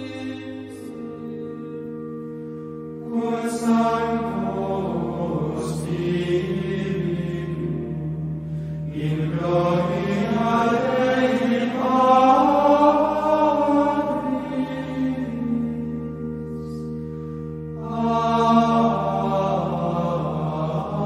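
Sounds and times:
steady low drone: 0.0s - 21.0s
voices chanting: 8.9s - 16.0s, 17.8s - 21.0s.

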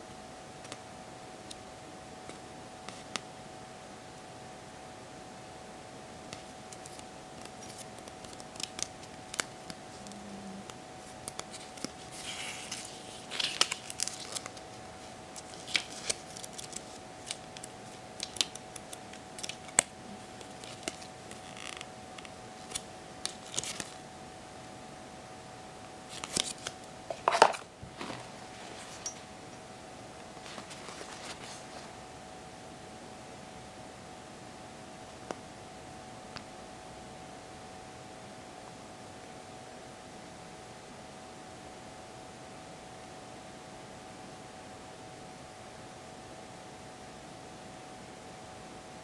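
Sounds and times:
faint steady hum: 0.0s - 49.0s
paper rustling: 6.7s - 10.2s, 11.0s - 14.7s, 15.4s - 21.9s, 22.6s - 24.0s, 26.1s - 29.0s, 30.4s - 31.9s.

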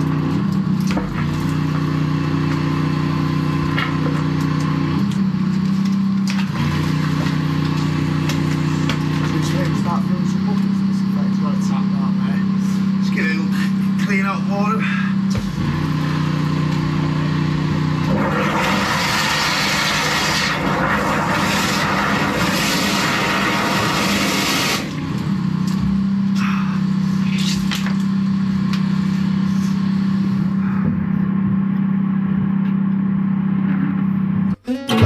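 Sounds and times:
machine engine running: 0.0s - 35.0s
high-pressure water jet hissing: 18.1s - 25.0s.

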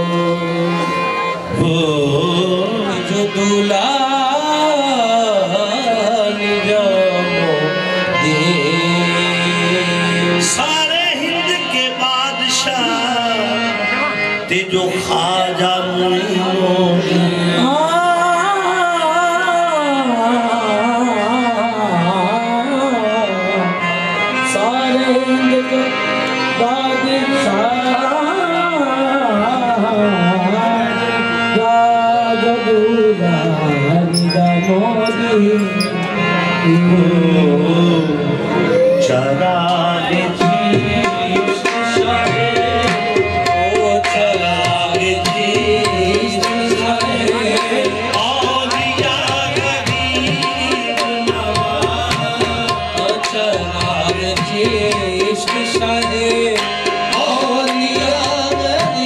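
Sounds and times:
tabla beat: 0.0s - 25.7s, 31.7s - 59.0s
harmonium: 0.0s - 59.0s
person singing gliding vocals: 24.6s - 59.0s.

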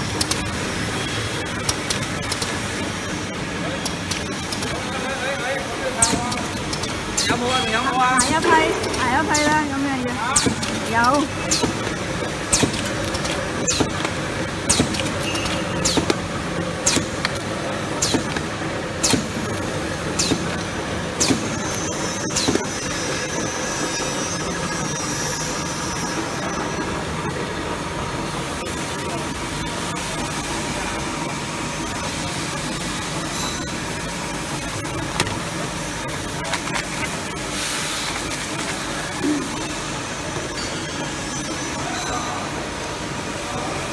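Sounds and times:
machine hum: 0.0s - 40.5s.

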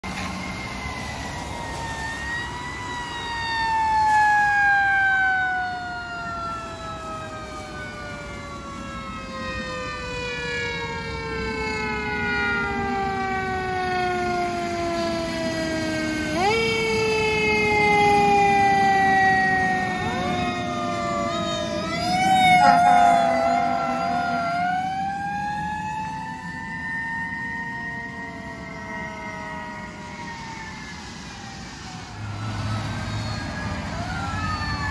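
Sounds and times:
fire engine siren wailing: 0.0s - 34.9s.

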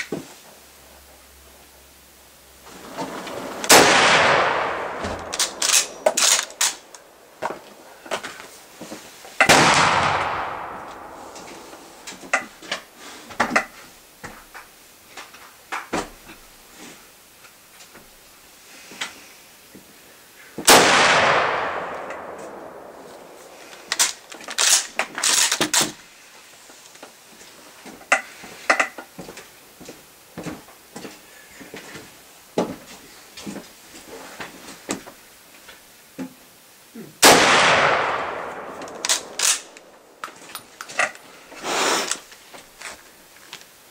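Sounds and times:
rifle shots with echo: 3.3s - 7.0s, 9.4s - 12.2s, 20.7s - 24.0s, 37.2s - 40.2s
rifle bolt metallic clicks: 3.6s - 7.1s, 21.4s - 25.9s, 37.6s - 41.2s.

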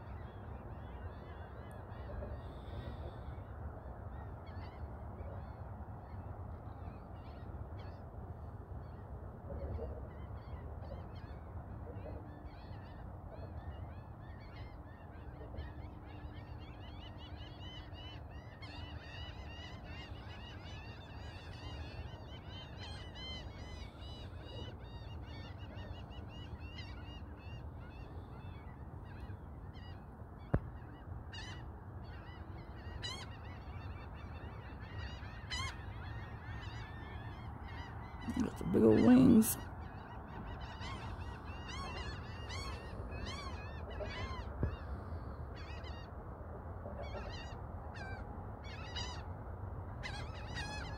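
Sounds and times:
flock of birds calling: 12.0s - 46.1s, 47.0s - 49.3s, 50.0s - 50.9s.

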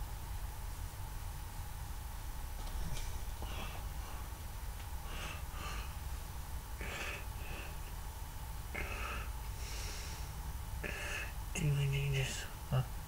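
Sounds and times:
low steady hum: 0.0s - 13.0s
person breathing and sniffing: 3.4s - 4.4s, 5.0s - 6.1s, 6.8s - 7.9s, 8.8s - 11.4s.

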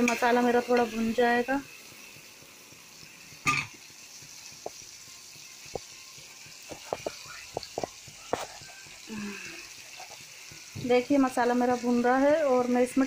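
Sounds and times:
spices sizzling in oil: 0.0s - 13.0s
spatula scraping pan: 9.7s - 10.4s.

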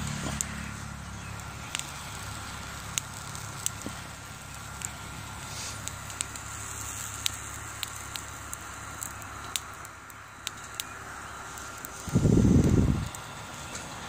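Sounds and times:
wood fire crackling: 0.0s - 14.0s
loud low rumble: 12.0s - 13.2s.

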